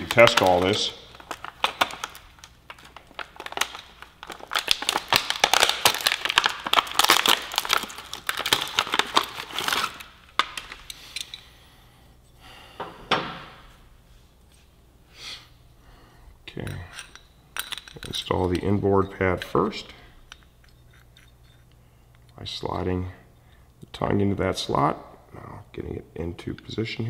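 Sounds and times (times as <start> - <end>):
plastic packaging crackling: 0.0 - 10.9.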